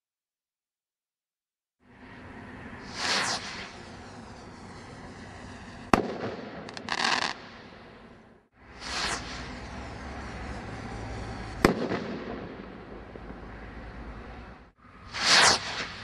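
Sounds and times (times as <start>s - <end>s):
firework rocket whoosh: 1.8s - 16.0s
brief hiss of firework stars: 2.0s - 7.6s, 8.6s - 12.7s, 15.0s - 16.0s
firework bang: 2.9s - 7.9s, 8.8s - 13.6s.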